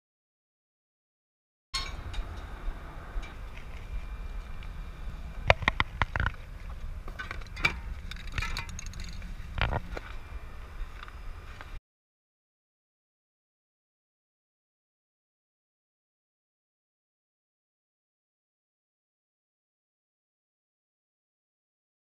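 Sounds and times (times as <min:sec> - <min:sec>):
low steady rumble: 0:01.8 - 0:11.8
objects clicking and clinking: 0:07.1 - 0:09.8.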